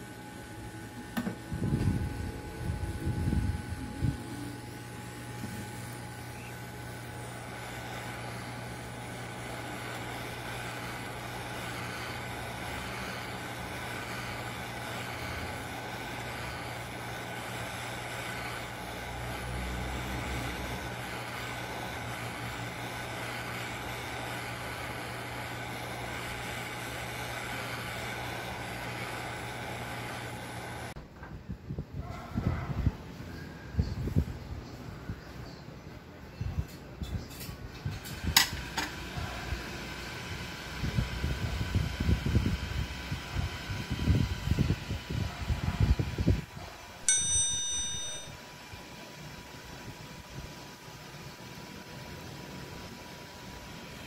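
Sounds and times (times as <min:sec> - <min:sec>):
hot air gun blowing: 0:04.1 - 0:31.0.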